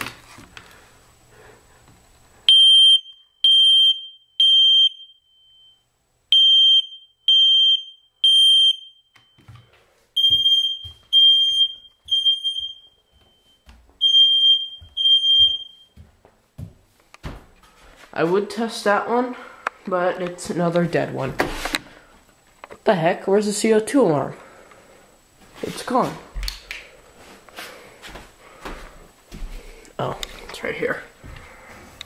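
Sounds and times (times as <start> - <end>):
smoke alarm beeping: 2.5 - 16.0.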